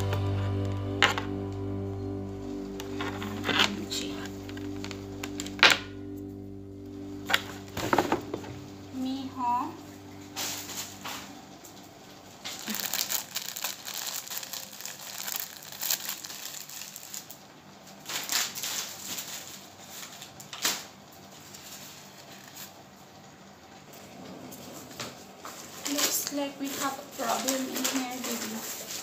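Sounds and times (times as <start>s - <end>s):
packaging crinkling and rustling: 2.7s - 5.8s, 12.4s - 23.3s, 24.7s - 29.0s.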